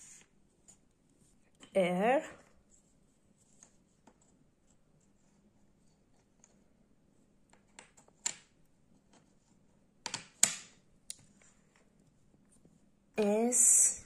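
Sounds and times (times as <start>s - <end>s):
wooden puzzle pieces clicking: 7.5s - 9.3s, 10.0s - 11.3s.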